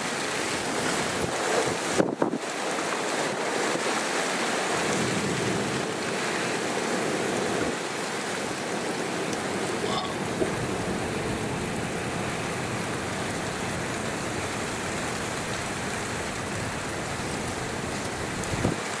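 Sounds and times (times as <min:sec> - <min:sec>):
steady rain hiss: 0:00.0 - 0:19.0.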